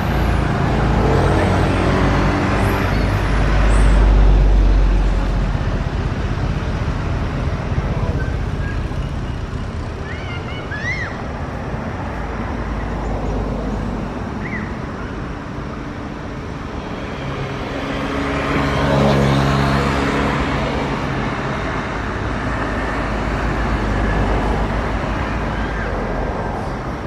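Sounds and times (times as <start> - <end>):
steady outdoor rumble: 0.0 - 27.0
motor vehicle passing by: 16.8 - 22.0.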